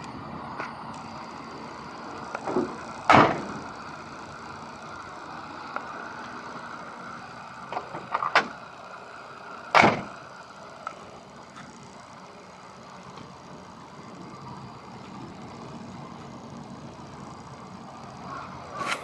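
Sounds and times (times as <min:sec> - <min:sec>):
car door slamming: 0:02.6 - 0:03.6, 0:09.7 - 0:10.1
car door latch clicks: 0:03.1 - 0:03.5, 0:09.7 - 0:10.1.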